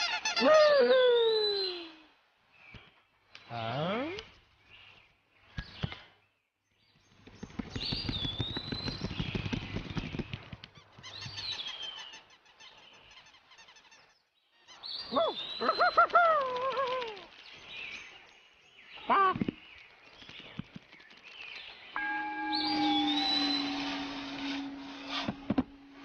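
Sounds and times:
fluttering rustle: 7.0 - 11.5, 15.6 - 18.7, 19.6 - 22.0
warbling squawk: 22.0 - 26.0.

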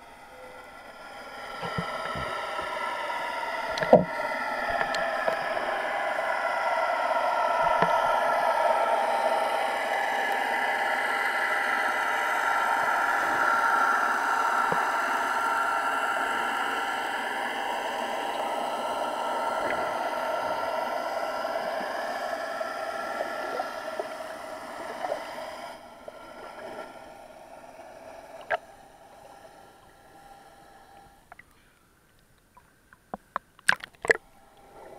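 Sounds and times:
underwater motorboat engine hum: 0.0 - 34.9
faint clicks: 31.0 - 34.2.

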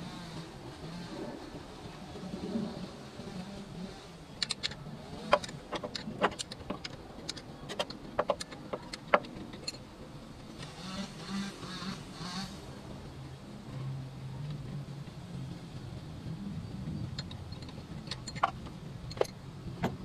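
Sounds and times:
metallic clicks of tools: 4.4 - 9.8, 17.0 - 20.0.

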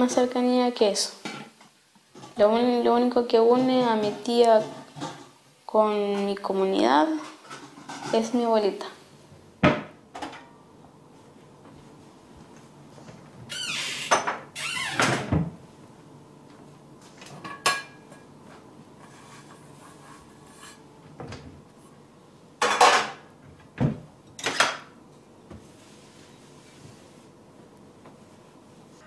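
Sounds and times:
plates knocked and set down: 22.6 - 23.2.

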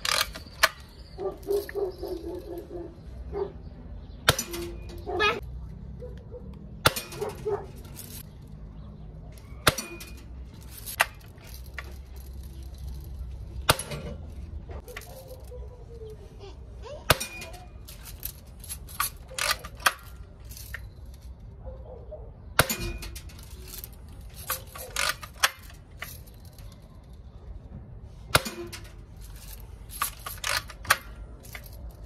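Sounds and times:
rifle lever clicks: 19.0 - 20.1.

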